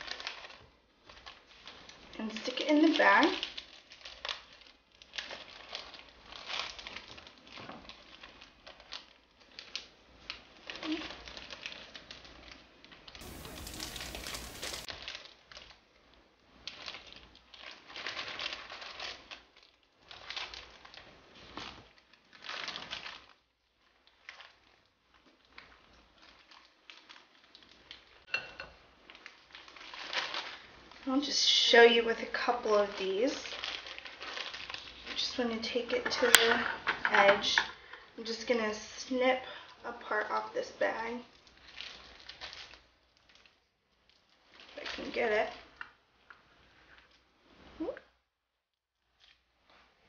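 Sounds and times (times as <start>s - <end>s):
plastic bag crinkling: 0.0s - 15.8s, 16.6s - 28.2s, 29.0s - 38.1s, 39.6s - 46.0s
spatula spooning filling: 13.2s - 14.9s
steady hiss: 13.2s - 14.9s.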